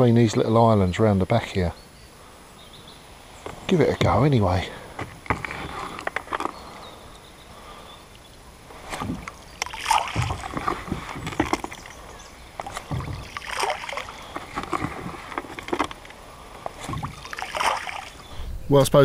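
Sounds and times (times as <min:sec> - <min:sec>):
bait pattering into water: 0:08.1 - 0:18.3.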